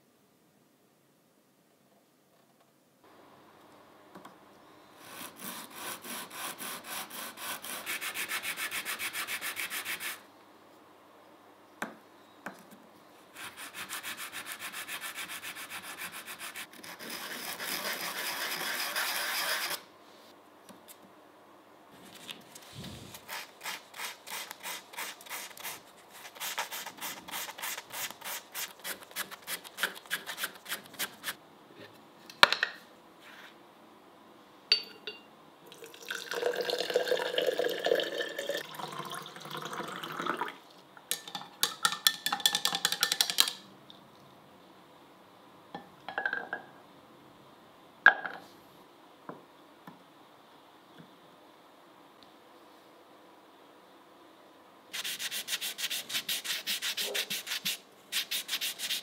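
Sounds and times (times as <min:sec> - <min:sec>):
wood sanded on sandpaper: 0:05.1 - 0:10.2, 0:13.4 - 0:19.8, 0:22.8 - 0:31.4, 0:55.0 - 0:59.0.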